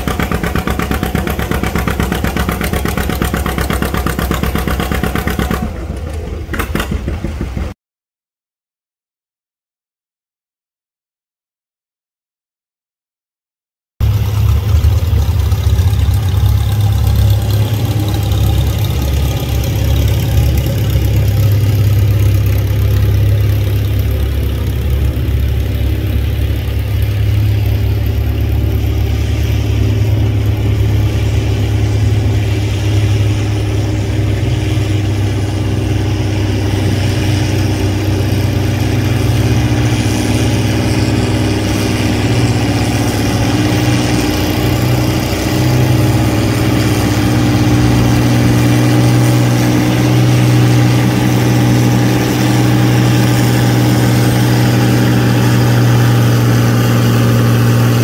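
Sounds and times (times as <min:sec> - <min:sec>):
tractor engine droning: 0:00.0 - 0:07.8, 0:14.0 - 0:58.0.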